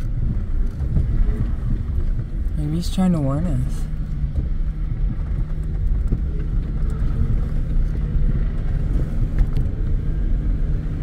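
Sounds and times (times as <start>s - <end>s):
truck engine running: 0.0s - 11.0s.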